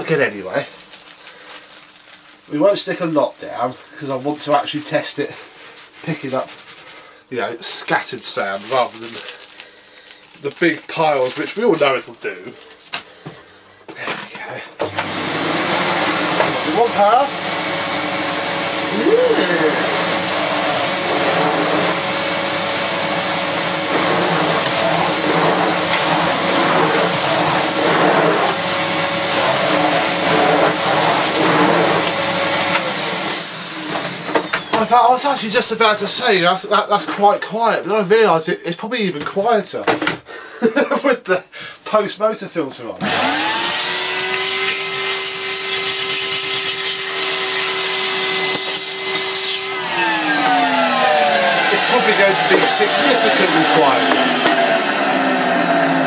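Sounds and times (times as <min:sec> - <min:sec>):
vacuum head sucking sand: 0:14.8 - 0:35.4, 0:43.0 - 0:56.0
vacuum cleaner running: 0:14.8 - 0:36.9, 0:43.0 - 0:56.0.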